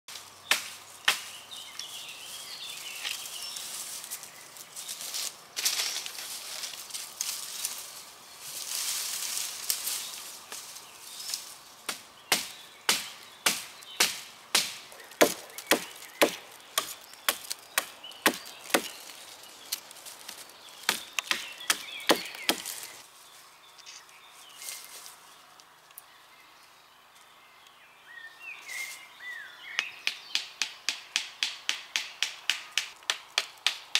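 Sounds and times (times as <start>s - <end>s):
rustling in brush and leaves: 0.1s - 27.4s, 28.1s - 29.6s
dry wood cracking and splintering: 14.6s - 23.0s.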